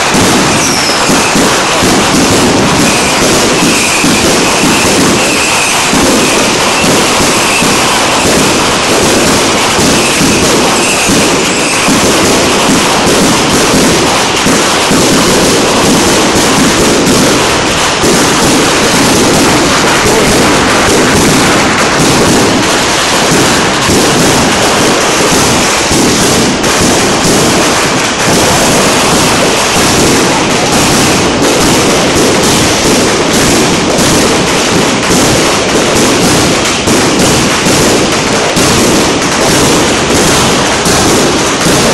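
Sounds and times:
crackling firework fountain: 0:00.0 - 0:41.9
fireworks bursting and banging: 0:00.0 - 0:41.9.

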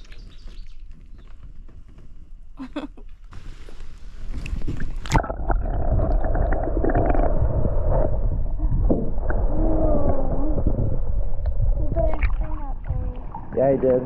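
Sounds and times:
wind: 0:00.0 - 0:14.0
water rushing: 0:04.2 - 0:14.0.

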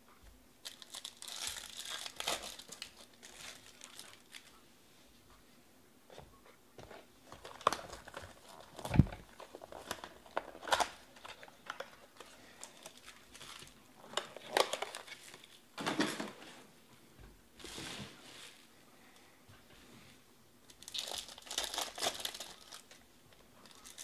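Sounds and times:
plastic shrink wrap crinkling: 0:00.6 - 0:04.6, 0:07.2 - 0:15.6, 0:20.7 - 0:24.0.

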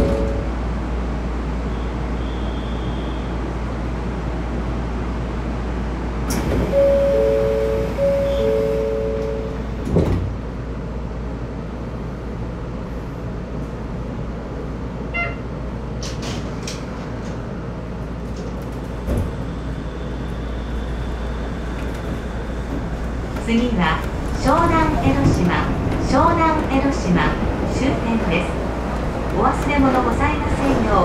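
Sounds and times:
monorail cab hum: 0:00.0 - 0:31.0
faint short beep: 0:06.8 - 0:09.5.

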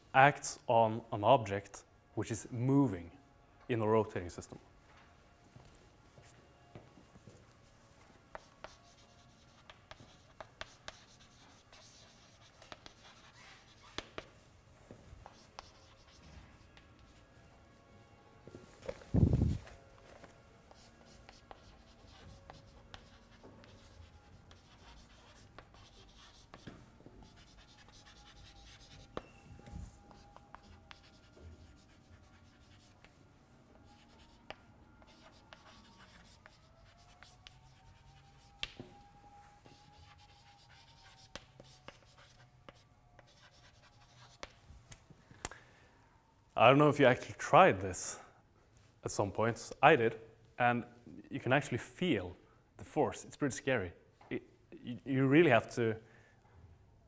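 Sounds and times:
chalk scratching on blackboard: 0:07.6 - 0:14.3, 0:15.2 - 0:17.2, 0:20.7 - 0:29.2, 0:30.0 - 0:33.1, 0:33.9 - 0:38.7, 0:39.7 - 0:44.5.

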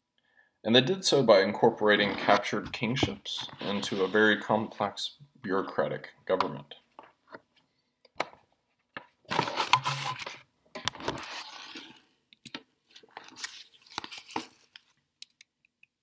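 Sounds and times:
rustling handling noise: 0:01.9 - 0:04.9, 0:08.9 - 0:12.0.

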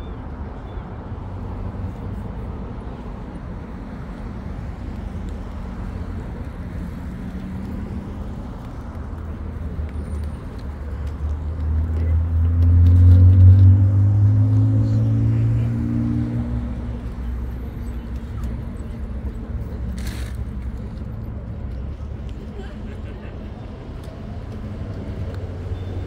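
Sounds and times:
traffic rumble: 0:00.0 - 0:26.0
vehicle engine passing by: 0:11.1 - 0:18.2.

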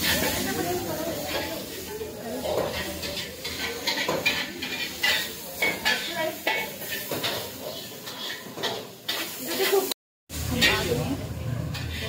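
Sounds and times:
dishes and cutlery clattering: 0:02.4 - 0:09.8.

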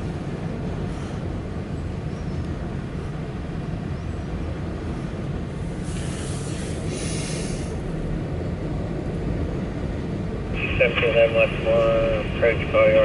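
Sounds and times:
freight train rumbling past: 0:00.0 - 0:13.0
hiss: 0:05.8 - 0:07.8.

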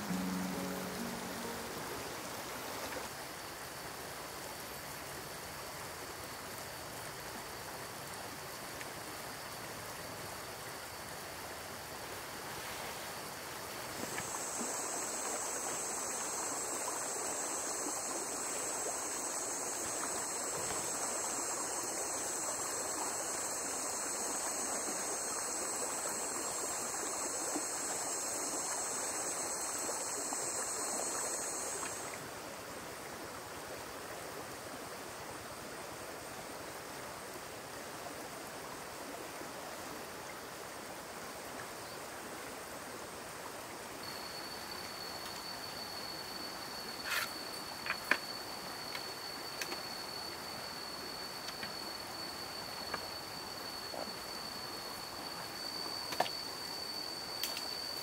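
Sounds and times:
high steady drone: 0:00.0 - 0:02.9
rushing water: 0:00.0 - 0:58.0.

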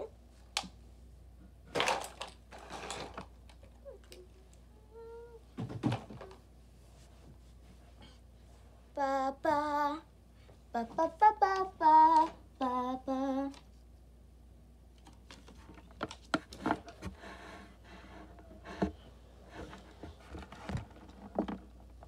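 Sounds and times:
person humming a tune: 0:03.8 - 0:05.5, 0:10.8 - 0:13.6.

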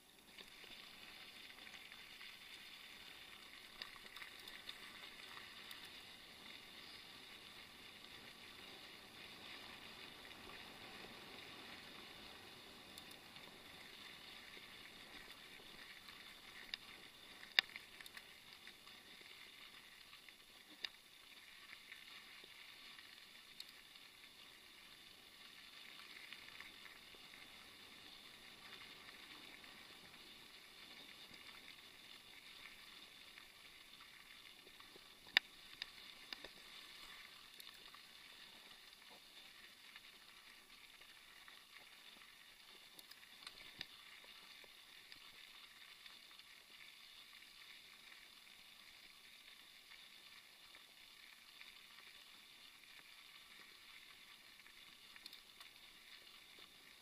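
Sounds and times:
bike tyres rolling on gravel: 0:00.1 - 0:20.6.

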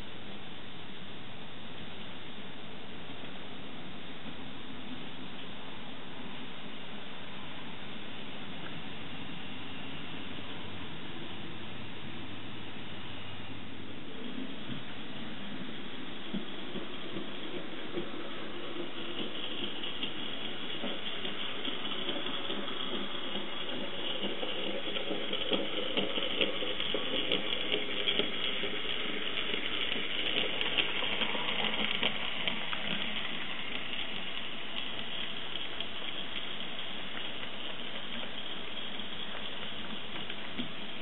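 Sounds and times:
steady hiss: 0:00.0 - 0:41.0
model train wheels clicking: 0:14.1 - 0:41.0.

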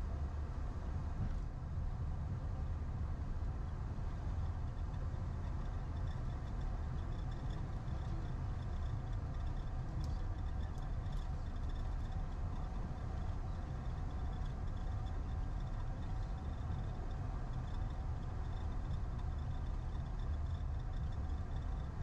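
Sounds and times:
jet engines low rumble: 0:00.0 - 0:22.0
faint high whine: 0:04.0 - 0:22.0
light ticks: 0:05.4 - 0:21.9.

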